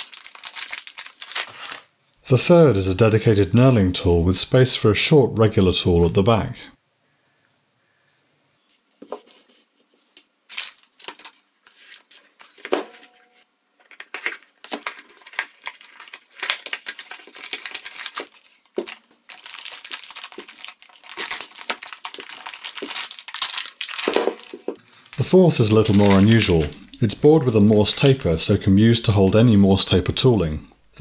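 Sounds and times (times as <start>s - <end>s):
cardboard box and plastic bag crinkling: 0.0s - 1.8s, 10.5s - 12.7s, 13.9s - 28.7s.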